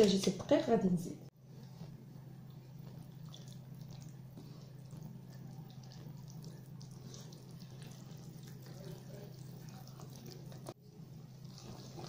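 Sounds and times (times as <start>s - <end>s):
steady low hum: 1.1s - 12.0s
whisk scraping batter in bowl: 5.1s - 12.0s.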